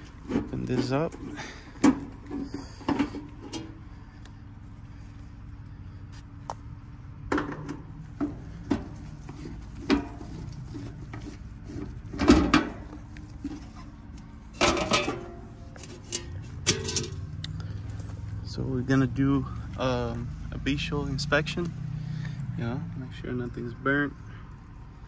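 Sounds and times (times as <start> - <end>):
clicks and scrapes: 7.5 - 17.5
sheet metal knocks and clatter: 14.6 - 15.4.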